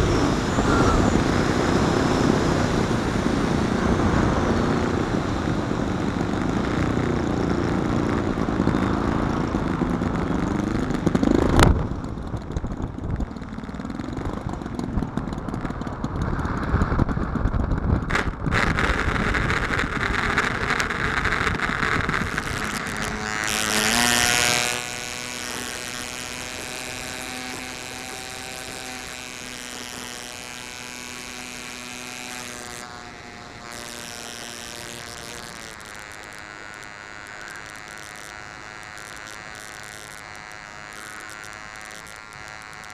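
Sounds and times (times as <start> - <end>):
wind rush: 0.0 - 6.8
model aircraft engine buzzing: 0.0 - 42.9
wheels rolling on ground: 0.0 - 42.9.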